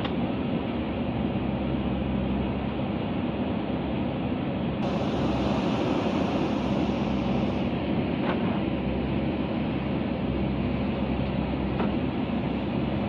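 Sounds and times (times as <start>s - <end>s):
diesel engine running under load: 4.8s - 13.0s.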